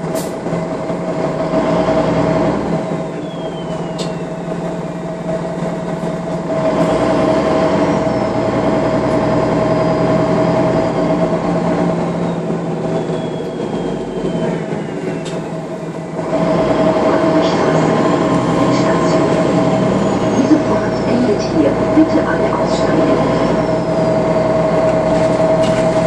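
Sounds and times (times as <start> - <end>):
bus engine humming: 0.0 - 26.0.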